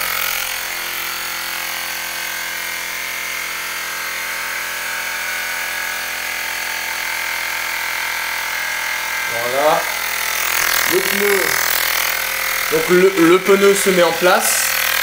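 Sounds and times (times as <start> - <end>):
electric air compressor running: 0.0 - 15.0.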